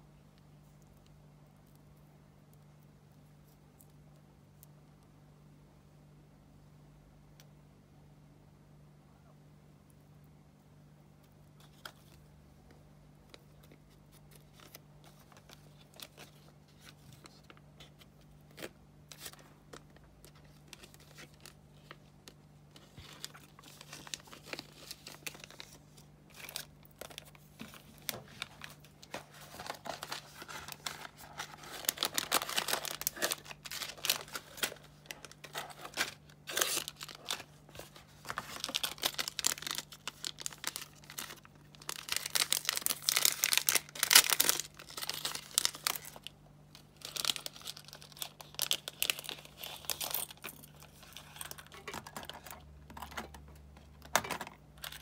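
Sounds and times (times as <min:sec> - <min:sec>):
plastic bags crinkling: 0:18.4 - 0:55.0.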